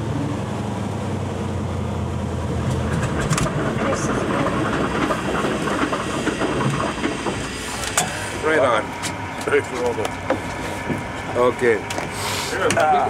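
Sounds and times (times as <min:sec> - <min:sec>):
piston engine running: 0:02.5 - 0:13.0
rough clattering with knocks: 0:02.6 - 0:08.2.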